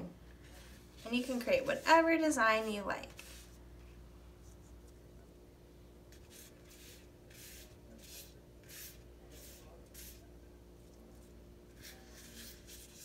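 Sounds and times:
brush swishing on paper: 0.4s - 3.6s, 6.1s - 10.3s, 11.1s - 13.0s.

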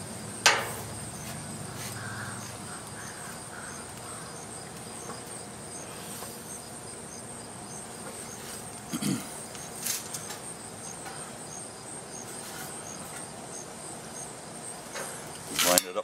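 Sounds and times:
insect chirps: 0.0s - 15.8s
insects buzzing: 0.0s - 16.0s.

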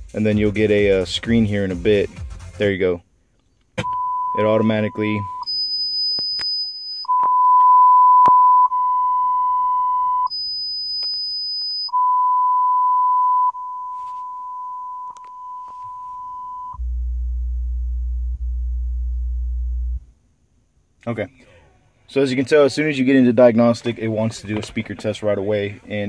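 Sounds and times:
steady beep-like test tone: 3.8s - 16.8s
higher test tone: 3.8s - 17.1s
low bass tone: 11.9s - 20.1s.

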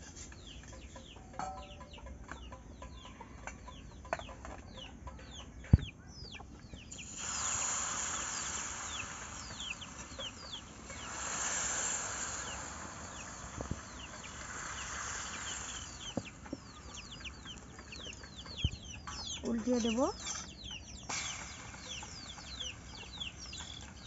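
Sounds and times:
chicks peeping: 0.0s - 24.0s
hiss: 6.9s - 24.0s.

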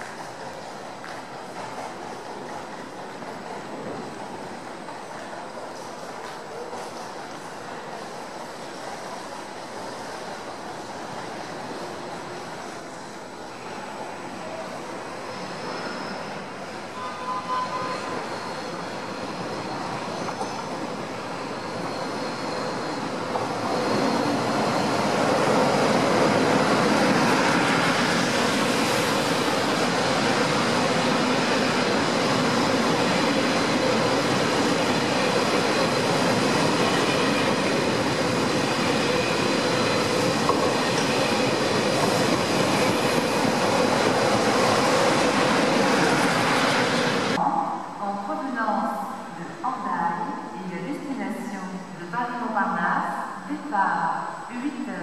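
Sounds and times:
high-speed train passing: 0.0s - 55.0s.

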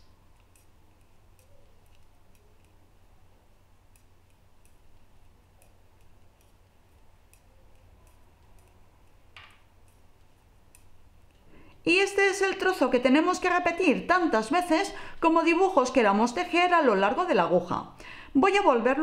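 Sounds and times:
metal knitting needles clicking: 0.0s - 11.5s
low steady hum: 0.0s - 19.0s.

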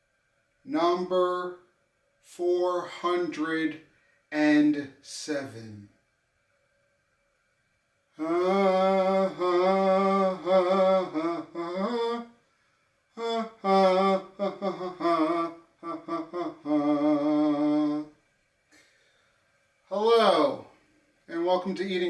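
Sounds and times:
person humming a tune: 8.2s - 12.4s, 13.2s - 18.2s.

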